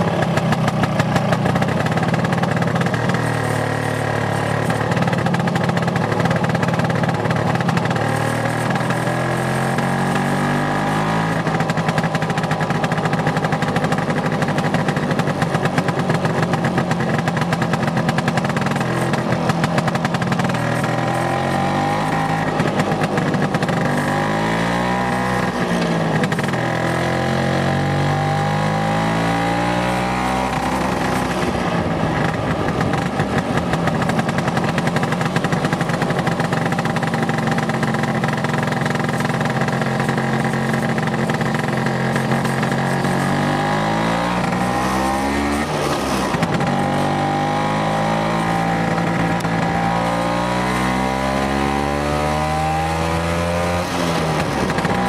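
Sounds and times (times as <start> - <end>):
scooter engine running: 0.0 - 55.0.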